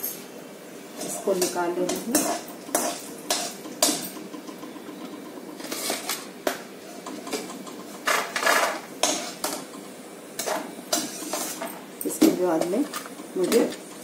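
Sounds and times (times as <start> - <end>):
spoon scraping metal pan: 1.0 - 4.0, 6.9 - 9.6, 10.4 - 11.7.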